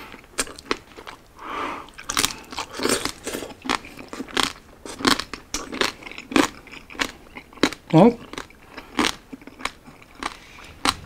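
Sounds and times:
chewing crispy pork: 0:00.0 - 0:11.0
sharp crunches of crackling: 0:01.9 - 0:11.0.

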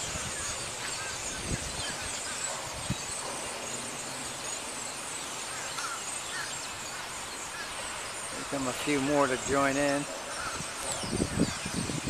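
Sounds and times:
flock of birds chattering: 0:00.0 - 0:12.0
wind noise: 0:00.0 - 0:12.0
wind thumps on microphone: 0:10.1 - 0:12.0.

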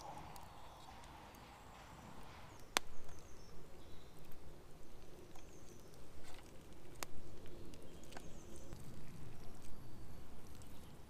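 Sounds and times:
bird chirps: 0:00.0 - 0:06.0
wind rumble: 0:00.0 - 0:11.0.

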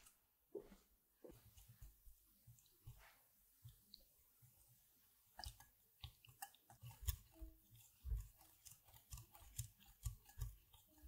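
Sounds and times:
whisk scraping glass bowl: 0:05.2 - 0:11.0.

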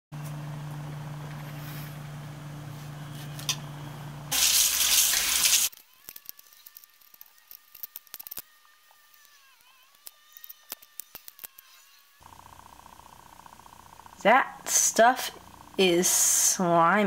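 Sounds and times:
steady low hum: 0:00.2 - 0:04.4, 0:12.2 - 0:17.0.

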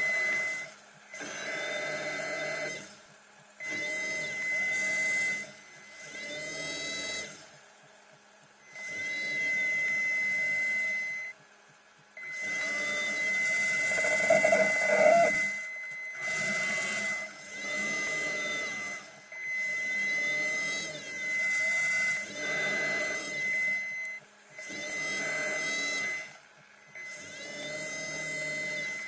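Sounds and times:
electric thruster motors whirring: 0:03.6 - 0:07.6, 0:12.2 - 0:29.0
steady high tone: 0:13.8 - 0:15.5.

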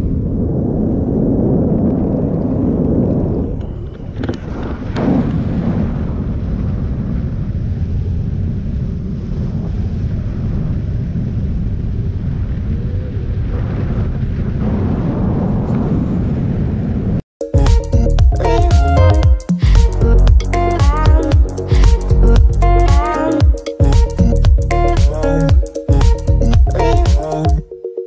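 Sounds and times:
wind rumbling on microphone: 0:00.0 - 0:17.2, 0:19.8 - 0:23.2.

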